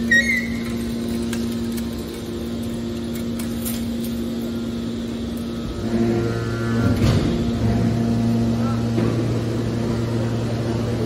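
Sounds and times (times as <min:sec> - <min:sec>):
high squeal: 0:00.0 - 0:00.9
hydraulic baler humming: 0:00.0 - 0:11.0.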